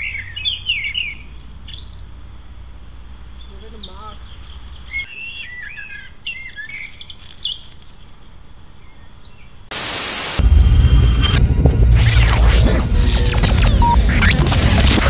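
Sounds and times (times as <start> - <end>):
small songbirds singing: 3.0 - 9.7
loud burst of hiss: 9.7 - 15.0.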